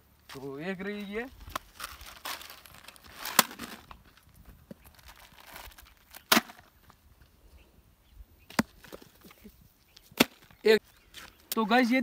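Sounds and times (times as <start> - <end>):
footsteps on dry dirt: 0.0 - 7.0.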